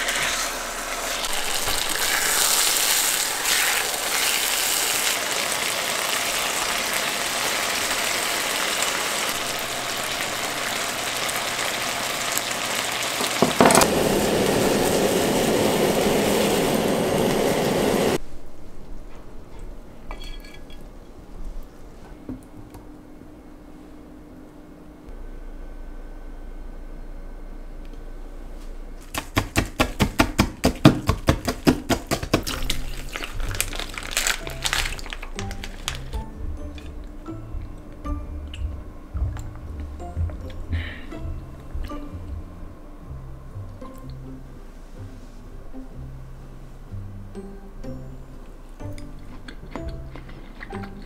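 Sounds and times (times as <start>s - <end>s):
food sizzling in a frying pan: 0.0s - 18.2s
music: 32.2s - 51.0s.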